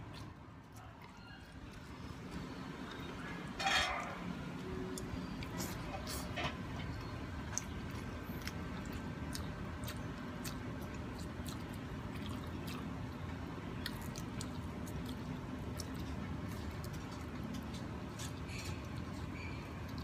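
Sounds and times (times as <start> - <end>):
steady low hum: 0.0 - 20.0
wet chewing and squishing: 0.0 - 20.0.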